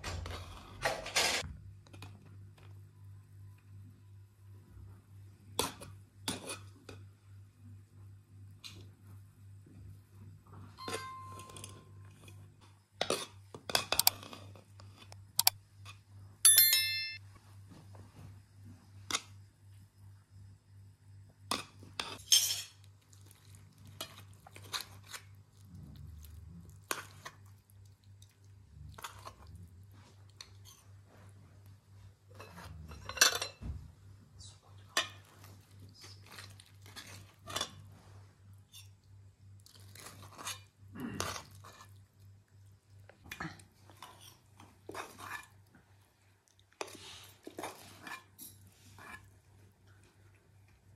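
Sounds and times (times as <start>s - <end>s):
low steady hum: 13.6s - 50.9s
china plates clinking: 16.5s - 17.2s, 22.2s - 22.8s
ringing metal strike: 16.5s - 17.2s.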